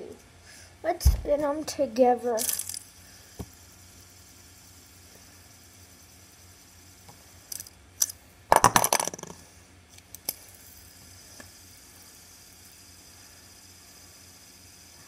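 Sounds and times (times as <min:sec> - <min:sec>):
plastic fidget spinners clacking: 0:02.3 - 0:03.6, 0:07.0 - 0:13.0.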